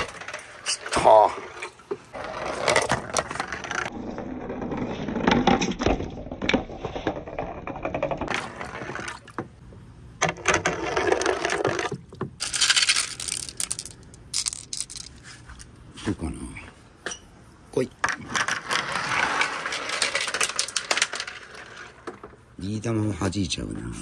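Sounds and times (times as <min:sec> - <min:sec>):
marbles clicking on track: 0:10.7 - 0:15.2, 0:19.4 - 0:22.0.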